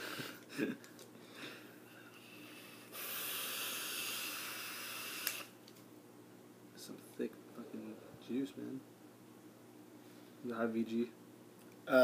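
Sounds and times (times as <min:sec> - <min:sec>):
air hissing through vape: 0:02.6 - 0:05.6.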